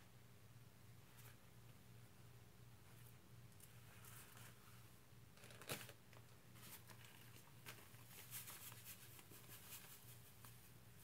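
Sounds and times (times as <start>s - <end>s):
light clicks and crinkles: 5.4s - 10.7s.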